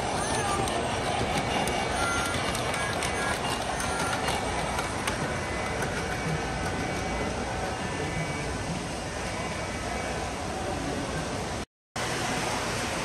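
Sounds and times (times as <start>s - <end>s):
wheels clicking on track: 0.0s - 8.0s
din of busy hall: 0.0s - 13.0s
model trains rumbling: 0.0s - 13.0s.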